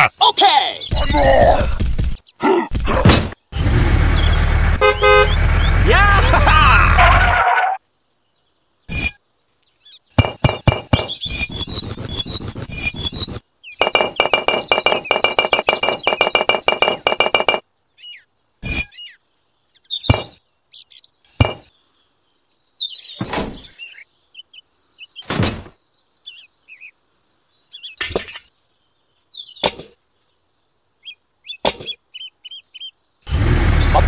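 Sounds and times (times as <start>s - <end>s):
small birds chirping: 0.0s - 6.9s, 7.8s - 34.0s
clay bricks knocking down: 13.8s - 17.6s.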